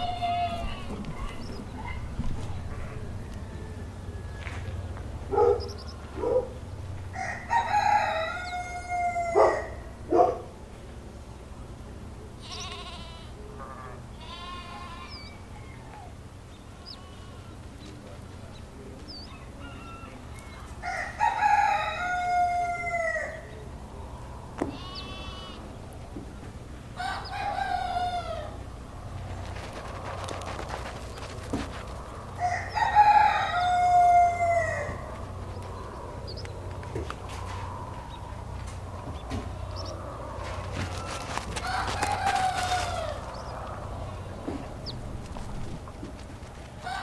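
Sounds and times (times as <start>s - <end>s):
rooster crowing: 0.0s - 1.0s, 2.6s - 6.4s, 7.1s - 10.0s, 19.2s - 23.6s, 27.0s - 28.7s, 30.8s - 38.6s, 39.7s - 44.5s, 46.8s - 47.0s
chicken clucks and calls: 0.0s - 10.3s, 13.4s - 47.0s
low steady hum: 0.0s - 47.0s.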